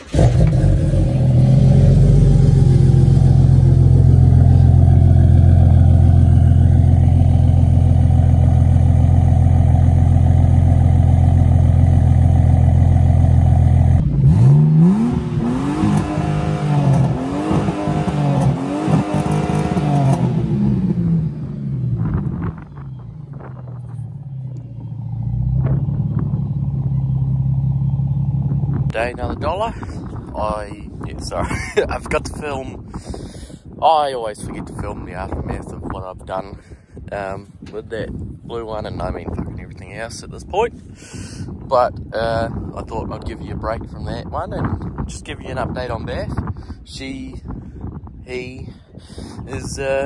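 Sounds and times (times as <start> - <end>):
car engine revving hard: 0.0 - 7.5, 13.8 - 22.2
car engine idling: 0.0 - 29.0.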